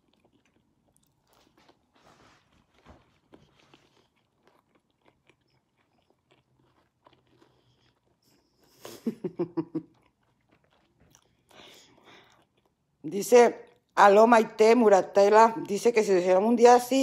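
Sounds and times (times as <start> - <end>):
person chewing food: 0.0 - 13.0, 13.6 - 14.0.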